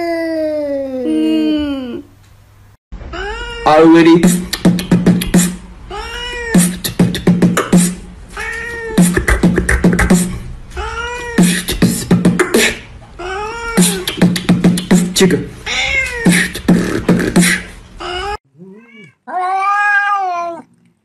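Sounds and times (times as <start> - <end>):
cat meowing: 3.1 - 3.8, 5.9 - 6.7, 10.8 - 11.4, 15.7 - 16.3, 18.0 - 20.7
beatboxed rhythm: 4.0 - 5.7, 6.5 - 8.0, 9.0 - 10.4, 11.4 - 12.9, 13.8 - 15.4, 16.2 - 17.7.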